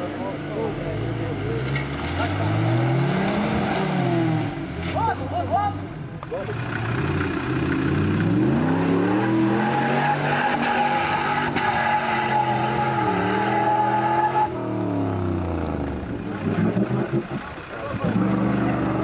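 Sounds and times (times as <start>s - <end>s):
engine revving hard: 2.0s - 4.6s, 6.5s - 17.4s, 18.0s - 19.0s.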